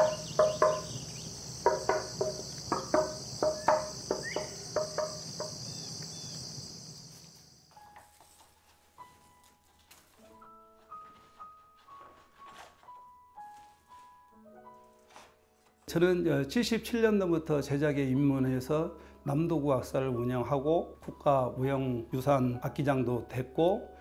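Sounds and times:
knocks on wooden plank: 0:00.0 - 0:05.8
crickets chirping: 0:00.0 - 0:07.9.

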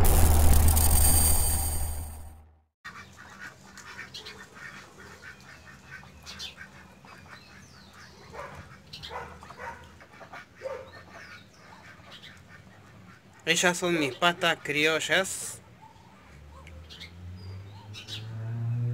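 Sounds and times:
ducks quacking: 0:02.9 - 0:15.3.

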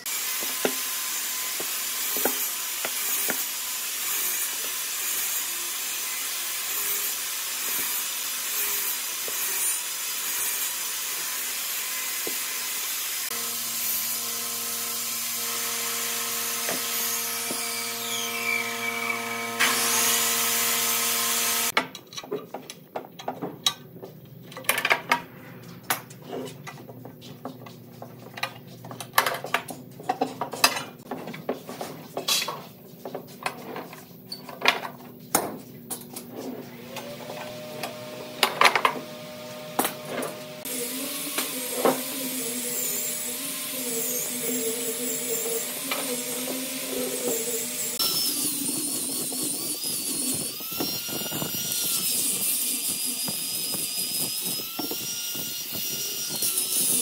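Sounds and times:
workshop machine running: 0:00.0 - 0:21.8, 0:36.2 - 0:52.1.

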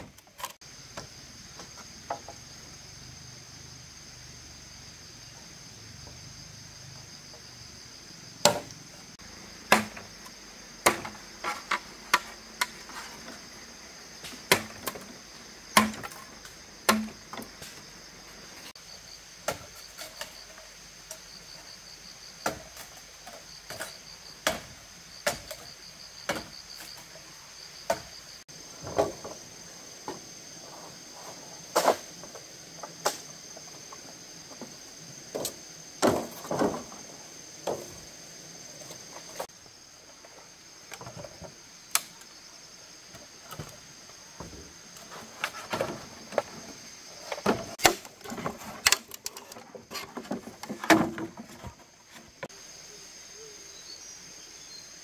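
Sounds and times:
insects droning: 0:00.0 - 0:55.0
tool knocking bamboo poles: 0:09.7 - 0:10.1, 0:15.8 - 0:16.2, 0:16.9 - 0:17.5.

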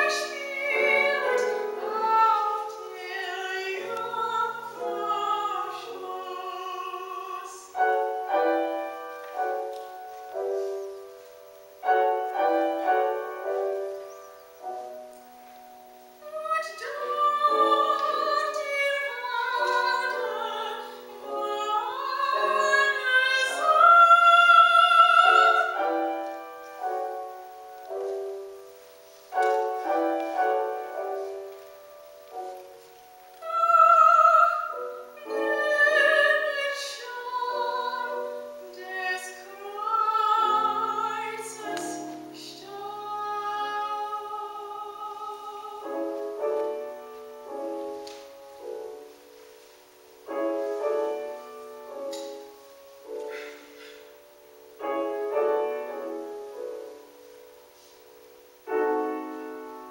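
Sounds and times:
woman singing with vibrato: 0:00.0 - 0:09.0, 0:16.2 - 0:26.3, 0:33.3 - 0:47.0
grand piano: 0:00.0 - 0:59.9.

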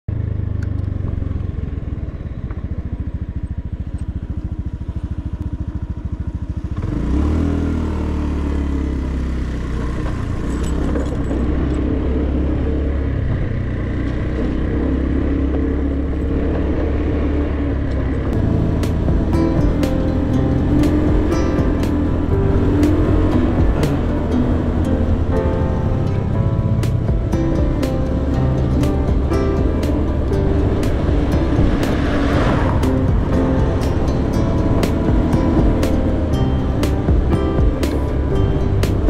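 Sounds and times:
small motorcycle engine revving: 0:00.2 - 0:25.2.

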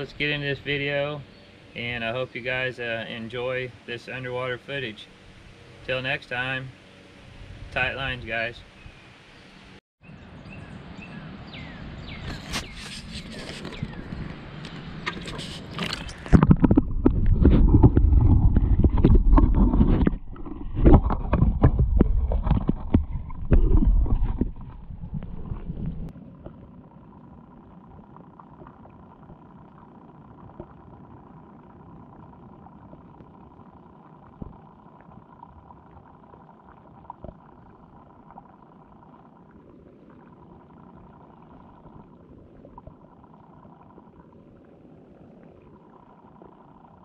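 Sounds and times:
underwater hum with high tone: 0:00.0 - 0:47.0
low underwater rumbling bumps: 0:13.8 - 0:44.3.

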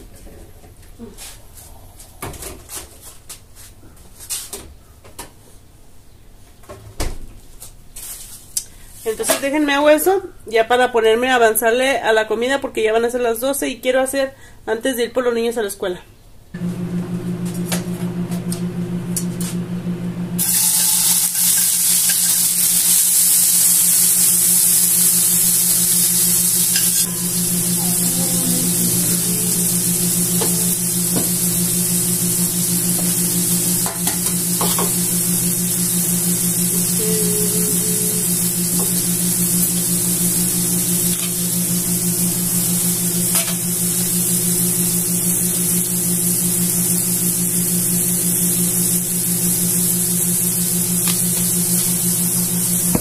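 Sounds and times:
food sizzling in a pan: 0:20.4 - 0:53.0.

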